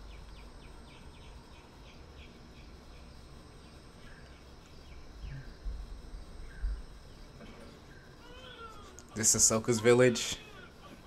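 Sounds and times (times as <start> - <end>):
low steady rumble: 0.0 - 8.2
small creatures chirping: 7.2 - 11.0.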